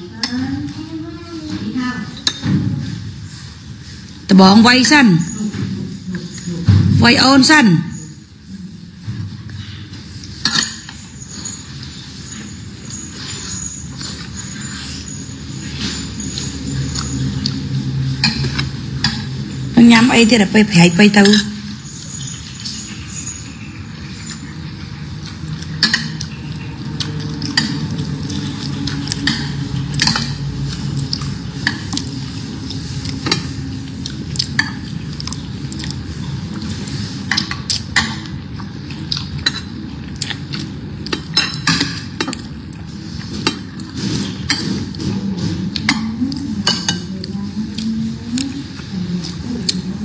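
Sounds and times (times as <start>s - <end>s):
steady low hum: 0.0s - 50.0s.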